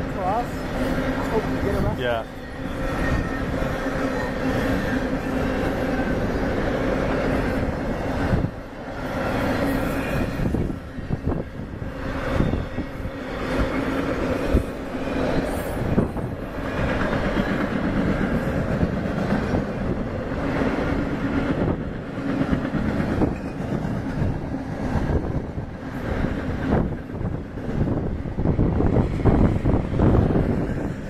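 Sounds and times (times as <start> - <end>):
freight train rumble: 0.0 - 31.0.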